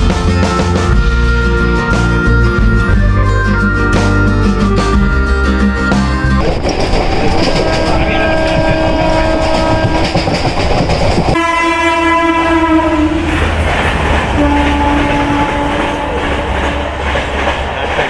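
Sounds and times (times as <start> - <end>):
train rumbling: 0.0 - 18.0
wheels clattering on rails: 6.4 - 11.4, 13.2 - 18.0
train horn blasts: 7.0 - 10.2, 11.4 - 13.6, 14.3 - 17.0.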